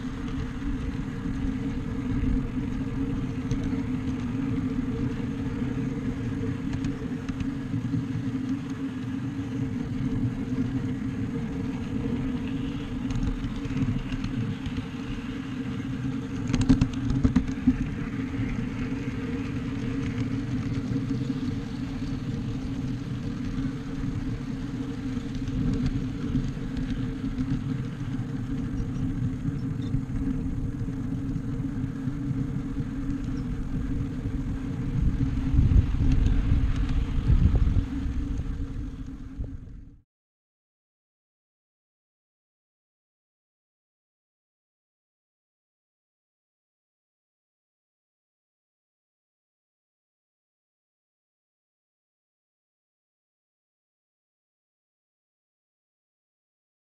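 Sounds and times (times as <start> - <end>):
scale train rumbling on track: 0.0 - 40.0.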